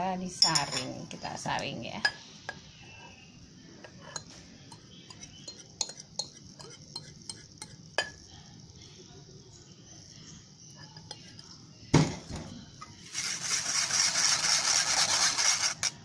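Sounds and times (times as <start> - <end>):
glass clinking against metal: 0.4 - 1.1, 4.0 - 8.2
batter pouring through strainer: 13.0 - 16.0.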